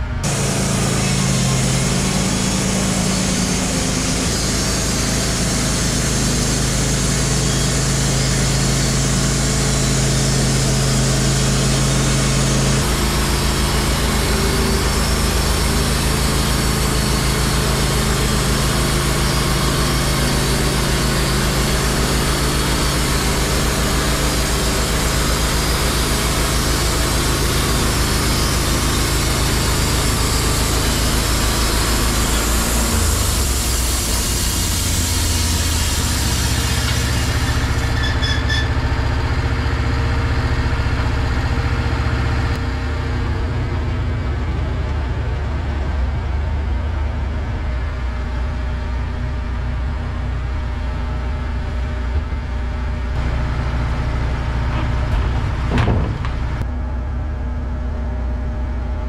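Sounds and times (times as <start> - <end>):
band sawmill sawing log: 0.1 - 42.9.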